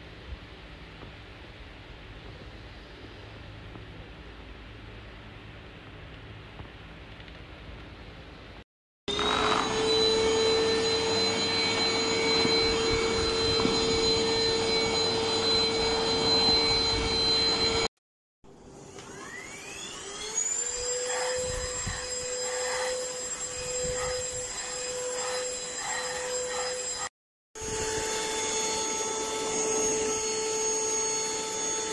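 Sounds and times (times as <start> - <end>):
handheld vacuum motor whine: 9.1 - 17.9, 18.7 - 31.9.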